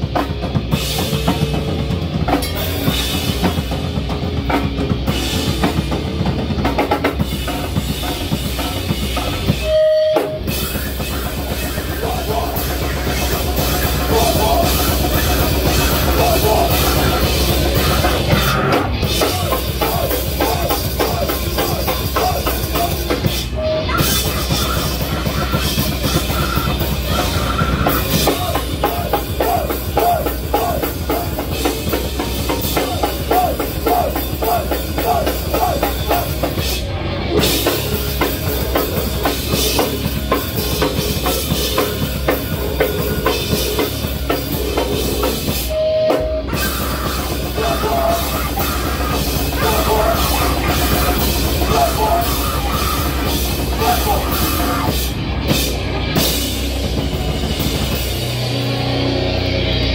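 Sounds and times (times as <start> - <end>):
bass guitar: 0.0 - 59.9
drum kit: 0.0 - 59.9
person singing: 10.5 - 36.6, 46.1 - 55.1.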